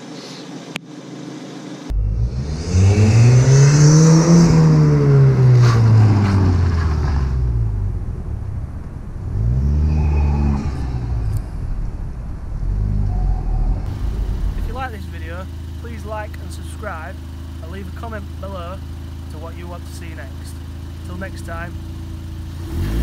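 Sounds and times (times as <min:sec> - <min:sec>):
car engine driving past: 0:01.9 - 0:15.8.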